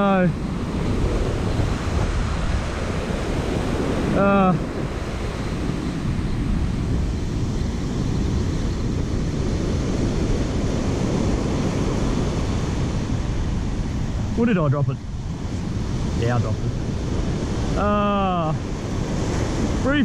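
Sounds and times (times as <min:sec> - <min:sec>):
surf breaking on beach: 0:00.0 - 0:20.0
wind buffeting microphone: 0:00.0 - 0:20.0.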